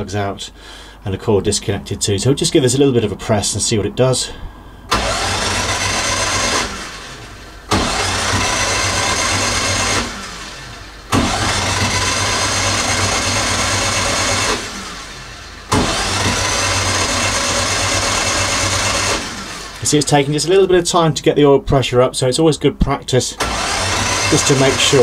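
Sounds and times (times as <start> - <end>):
starter motor cranking engine: 4.9 - 20.2, 23.4 - 25.0.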